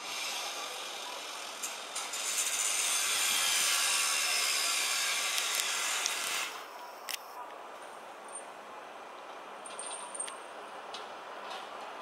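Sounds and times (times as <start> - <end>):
angle grinder cutting metal: 0.0 - 6.7.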